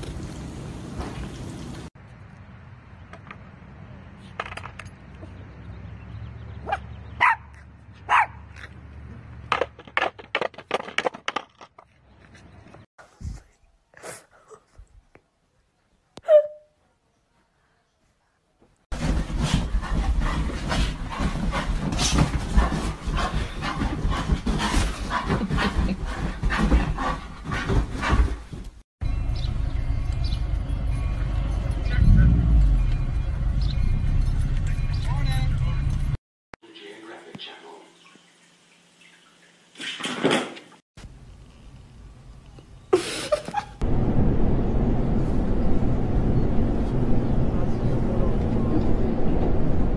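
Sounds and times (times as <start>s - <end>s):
heavy low rumble: 29.0s - 36.2s, 43.8s - 49.9s
low hum: 29.0s - 36.2s, 43.8s - 49.9s
subway car rumbling: 43.8s - 49.9s.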